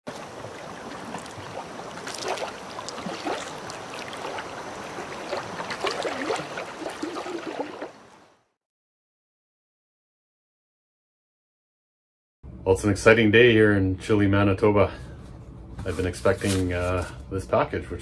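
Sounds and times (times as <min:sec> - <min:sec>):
water lapping and splashing: 0:00.0 - 0:08.4.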